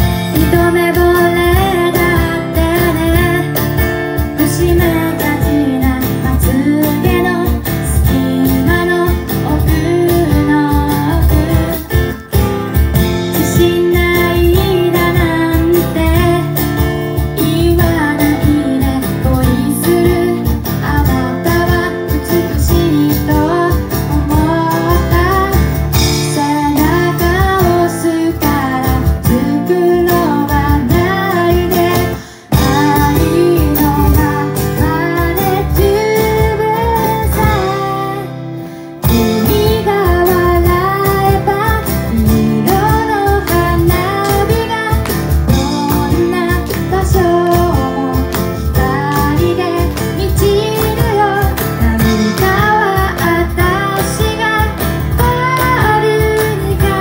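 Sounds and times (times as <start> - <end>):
acoustic guitar strumming: 0.0 - 57.0
woman singing: 0.0 - 57.0.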